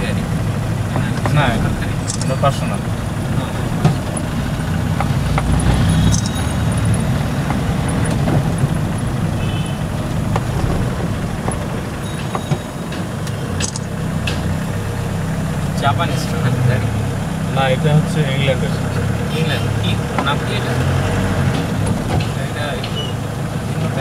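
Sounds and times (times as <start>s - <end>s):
car engine and road rumble: 0.0s - 24.0s.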